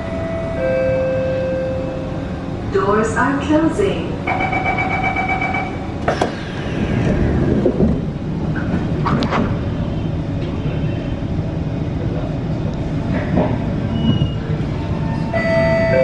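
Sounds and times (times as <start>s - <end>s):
door-closing warning tone: 0.0s - 2.0s, 4.3s - 6.4s, 13.9s - 16.0s
train humming: 0.0s - 16.0s
falling whine: 4.3s - 10.7s
sliding doors shutting knock: 6.0s - 9.6s.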